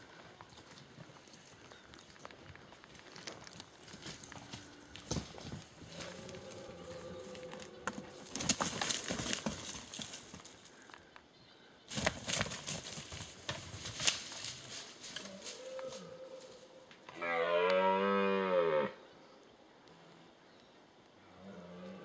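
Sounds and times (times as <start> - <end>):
footsteps through leaves and twigs: 0.1 - 10.9, 11.9 - 16.8.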